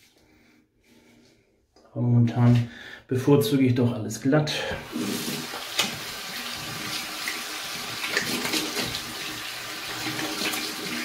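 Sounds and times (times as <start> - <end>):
tap water splashing into sink: 4.8 - 11.0.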